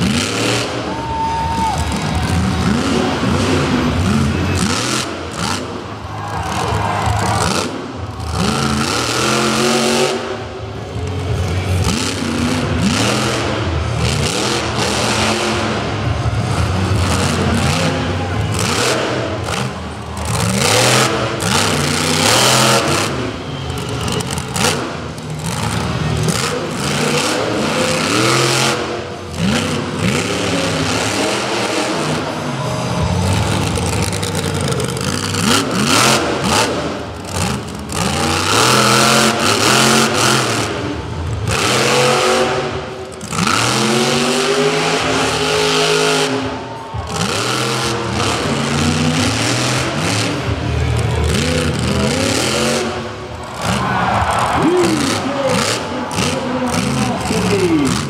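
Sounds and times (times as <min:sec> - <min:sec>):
truck engine revving hard: 0:00.0 - 0:58.0.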